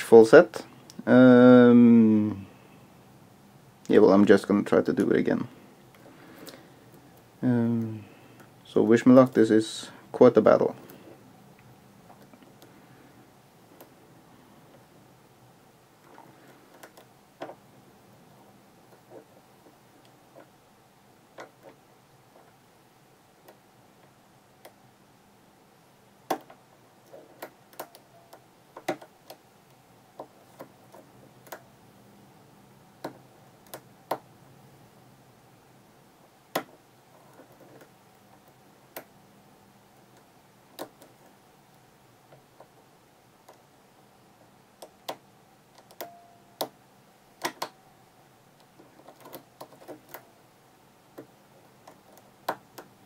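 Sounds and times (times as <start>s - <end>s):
lock pick clicks: 27.4s - 29.4s, 44.8s - 46.8s.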